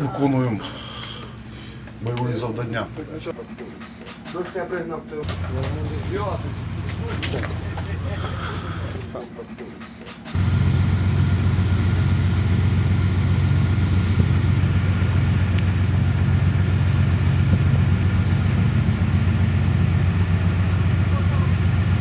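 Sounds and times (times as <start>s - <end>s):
diesel engine idling: 5.3s - 9.1s, 10.4s - 22.0s.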